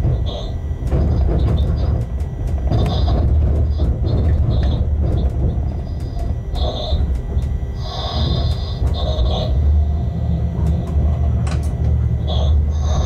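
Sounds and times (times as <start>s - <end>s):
wheels clicking over rail joints: 0.0s - 9.6s
locomotive low rumble: 0.0s - 13.0s
high-pitched wheel squeals: 2.7s - 7.2s.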